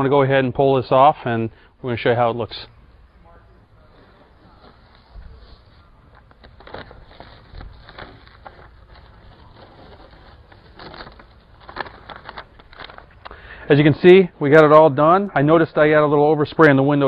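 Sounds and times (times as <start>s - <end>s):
tape peeling and crumpling: 3.9s - 13.3s.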